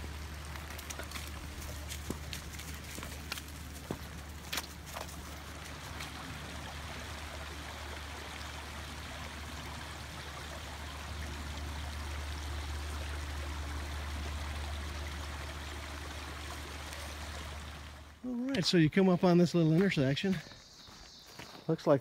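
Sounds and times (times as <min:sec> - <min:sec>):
water rushing: 0:00.0 - 0:18.9
footsteps on gravel: 0:00.5 - 0:05.5, 0:19.6 - 0:22.0.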